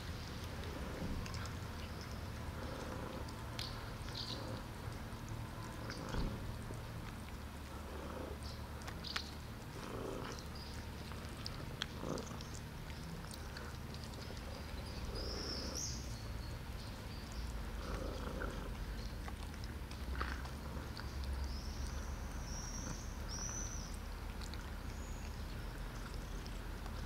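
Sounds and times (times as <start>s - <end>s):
cats chewing and licking: 0.0s - 27.0s
cats purring: 0.0s - 27.0s.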